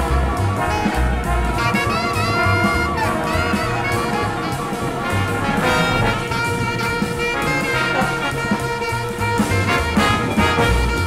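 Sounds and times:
jazz with brass playing: 0.0 - 11.0.

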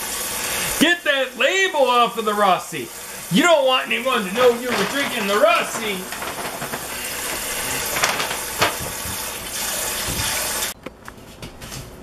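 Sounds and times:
tap running into sink: 8.6 - 10.5.

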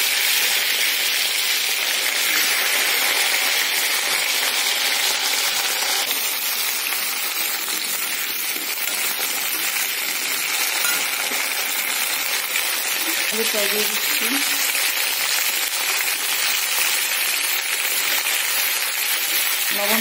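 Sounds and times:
cauliflower sizzling in hot oil: 0.0 - 20.0.

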